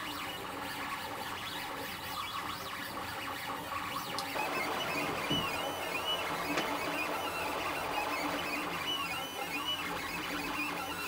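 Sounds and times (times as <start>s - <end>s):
printer stepper motors whining: 3.3s - 11.0s.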